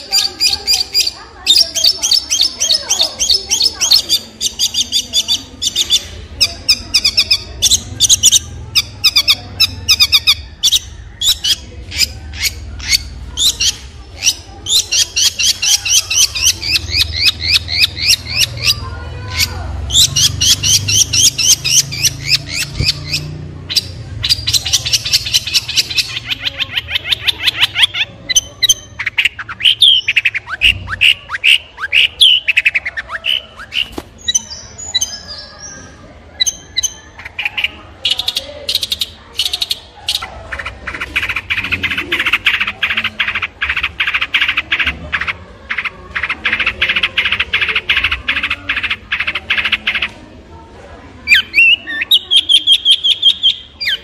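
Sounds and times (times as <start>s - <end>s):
bird singing rapid high notes: 0.0s - 50.1s.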